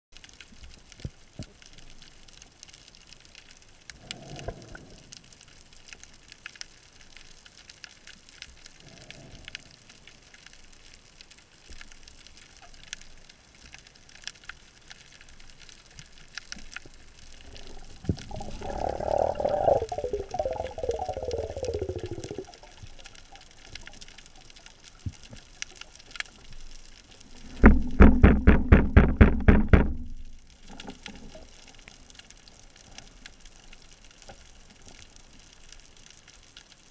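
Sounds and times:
faint underwater clicks: 0.2 - 36.9
gurgling rush of water and bubbles: 15.2 - 33.2.

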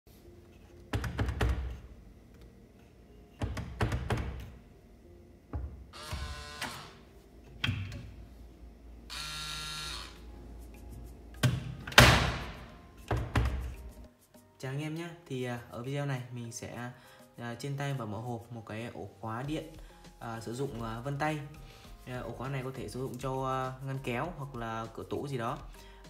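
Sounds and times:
cabinet lock clunks and knocks: 0.9 - 1.8, 3.4 - 4.6, 11.4 - 13.8
short electric buzzes: 5.9 - 7.0, 9.1 - 10.3.

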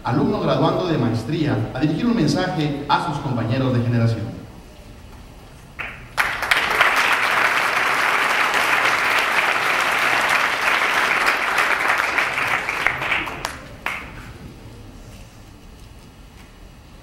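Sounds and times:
audience applauding: 5.8 - 14.4.

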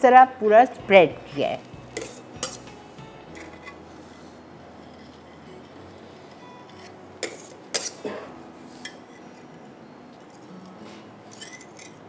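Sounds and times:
metal knife scraping ceramic plate: 2.0 - 2.7.

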